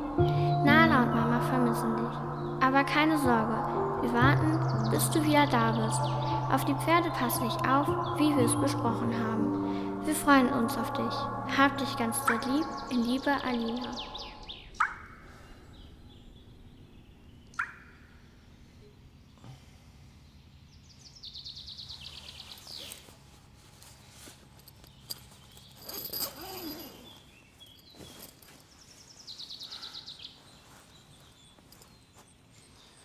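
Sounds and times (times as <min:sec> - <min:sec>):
steady low hum: 0:00.0 - 0:26.4
high bird trills: 0:03.7 - 0:16.0.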